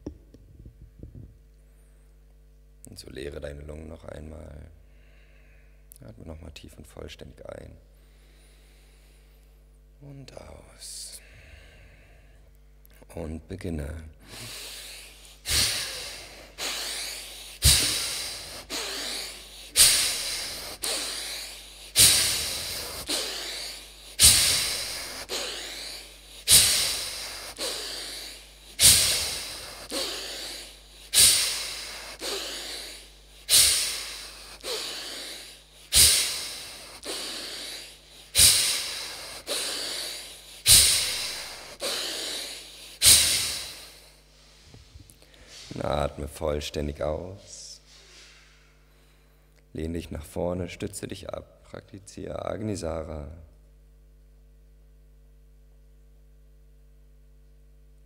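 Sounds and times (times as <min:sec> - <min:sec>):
forceful breathing: 0:14.2 - 0:45.8.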